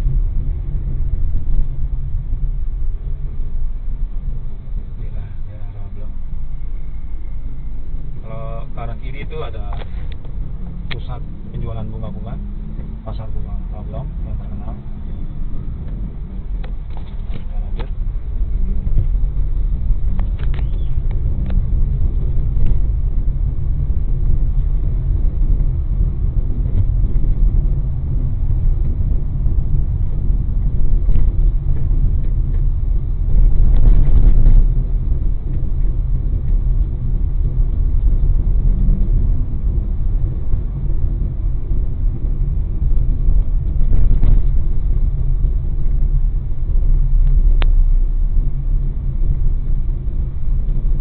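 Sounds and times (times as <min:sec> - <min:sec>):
road and engine noise in car: 0:00.0 - 0:51.0.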